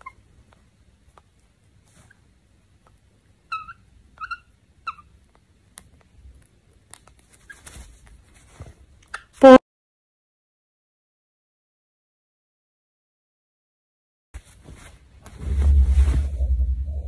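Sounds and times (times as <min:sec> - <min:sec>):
bird chirping: 0:03.5 - 0:05.1
bird nibbling blanket: 0:05.1 - 0:09.1.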